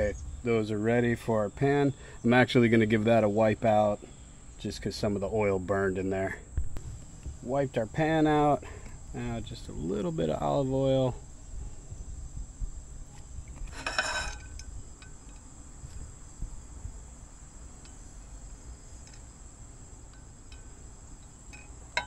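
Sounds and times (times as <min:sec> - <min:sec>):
high insect trill: 0:00.0 - 0:22.0
frying pan metallic clatter: 0:13.7 - 0:15.2
light clinks of pan: 0:13.7 - 0:15.5, 0:20.1 - 0:22.0.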